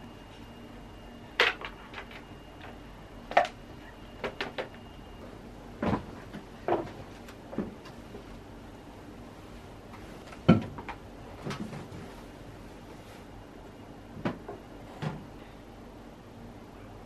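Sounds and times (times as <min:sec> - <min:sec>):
objects knocking and clunking: 0:05.8 - 0:08.0, 0:10.3 - 0:12.0.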